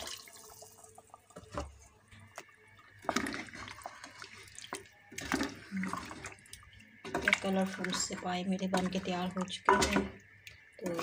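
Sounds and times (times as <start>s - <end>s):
liquid sloshing in a pot: 0.0s - 11.0s
spoon knocking and scraping pot: 9.6s - 10.2s.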